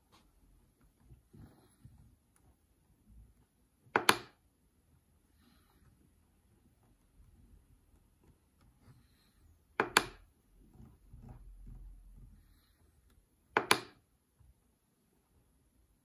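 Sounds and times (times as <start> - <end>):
control panel button clicks: 13.6 - 14.0.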